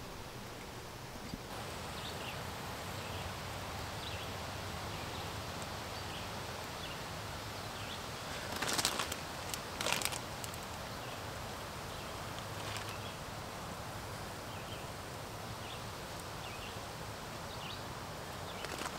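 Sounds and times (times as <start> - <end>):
woodland hiss: 0.0 - 18.9
plastic bag crinkling: 8.5 - 10.7, 18.6 - 18.9.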